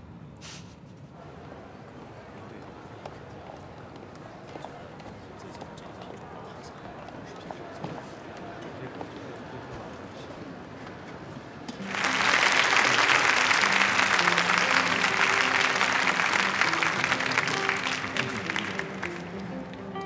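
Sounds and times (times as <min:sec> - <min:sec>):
audience applause: 0:01.2 - 0:20.0
background music sustained notes: 0:11.8 - 0:20.0.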